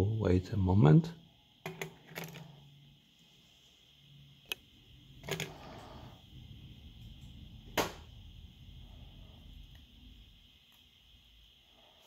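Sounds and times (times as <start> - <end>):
small electronic parts clicking: 4.4 - 4.6.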